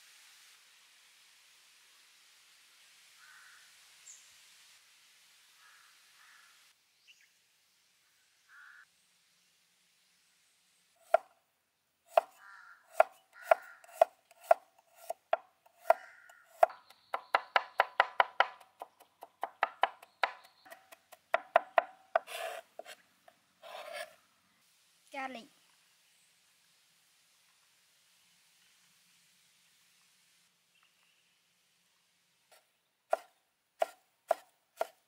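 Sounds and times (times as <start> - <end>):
cleaver chopping on wooden board: 12.1 - 23.0, 33.1 - 35.0.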